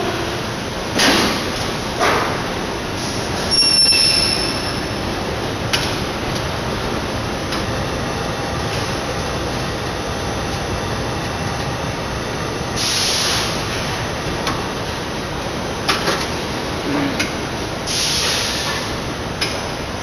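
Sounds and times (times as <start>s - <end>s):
production line running noise: 0.0s - 20.0s
loud hiss: 12.8s - 13.8s, 17.9s - 18.8s.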